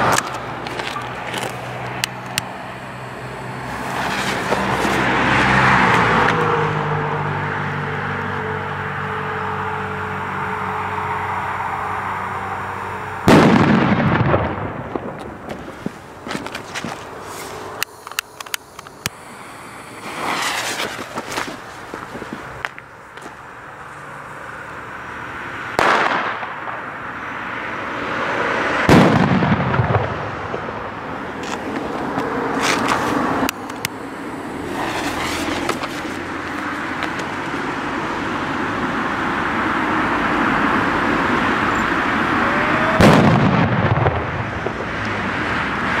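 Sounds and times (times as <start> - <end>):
steady firework hiss: 1.4 - 5.2, 15.6 - 24.7, 30.2 - 37.7
firecracker bangs with echo: 13.3 - 15.4, 25.8 - 26.8, 28.8 - 31.0, 43.0 - 45.0
small firecracker pops: 25.8 - 26.6, 43.0 - 45.1.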